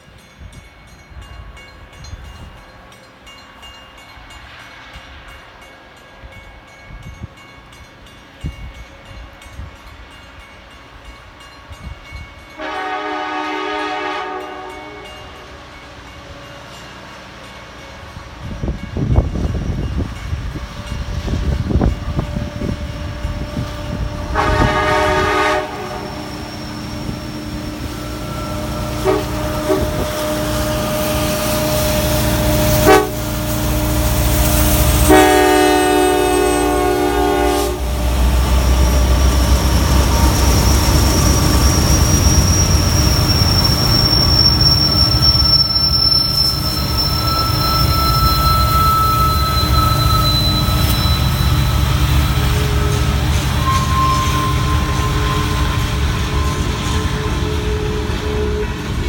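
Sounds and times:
locomotive air horn blasts: 0:12.6 - 0:15.4, 0:23.9 - 0:26.6, 0:28.0 - 0:38.5
steel wheels squealing on rails: 0:15.0 - 0:59.0
locomotives rumbling past: 0:22.5 - 0:59.0.

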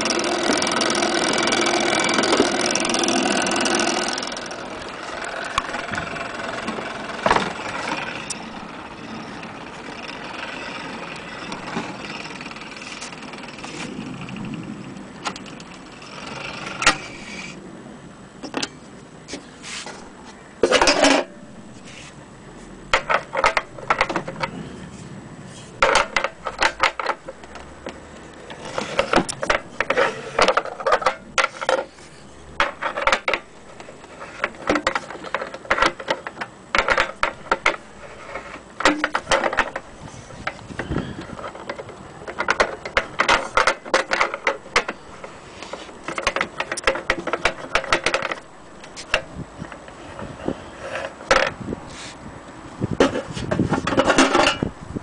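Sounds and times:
metallic clicks and clatter: 0:32.6 - 0:50.3.

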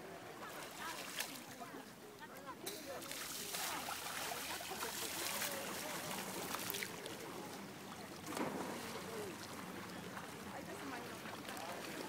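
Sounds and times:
small waves lapping: 0:00.0 - 0:12.0
soft water splashes: 0:00.0 - 0:12.0
wind: 0:00.0 - 0:12.0.

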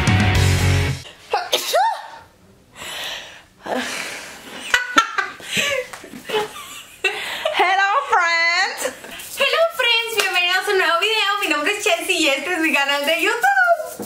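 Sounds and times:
intro music: 0:00.0 - 0:01.0
women laughing and giggling: 0:03.8 - 0:07.6.

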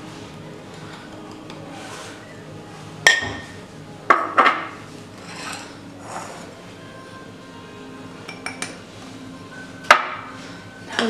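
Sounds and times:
dishes clinking: 0:03.0 - 0:06.5, 0:08.2 - 0:08.8.

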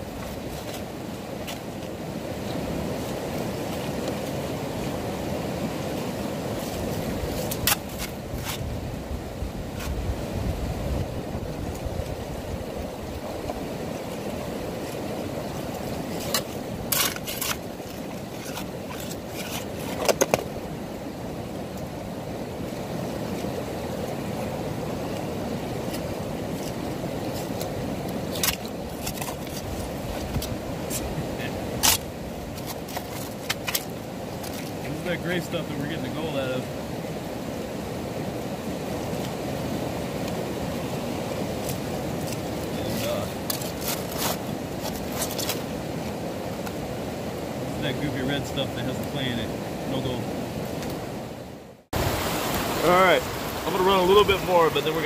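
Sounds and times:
shovel scraping gravel: 0:16.1 - 0:20.2, 0:42.8 - 0:45.6.

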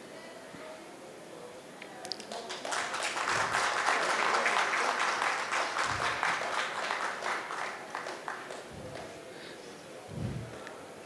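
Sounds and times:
audience applauding: 0:02.2 - 0:09.2.

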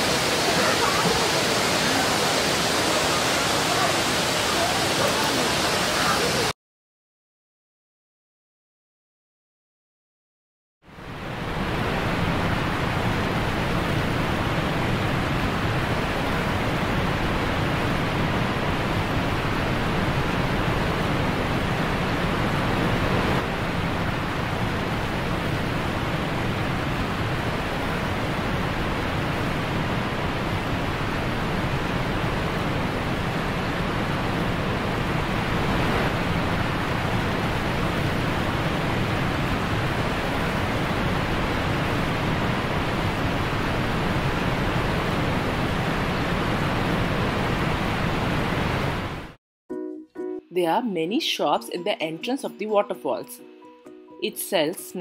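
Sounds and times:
waterfall rushing: 0:00.0 - 0:06.5, 0:11.0 - 0:49.4.

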